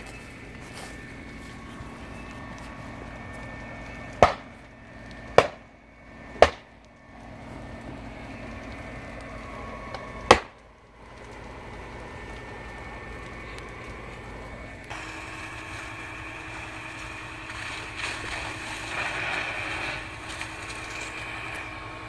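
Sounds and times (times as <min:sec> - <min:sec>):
steady background hum: 0:00.0 - 0:22.0
gas canisters bursting: 0:14.9 - 0:22.0.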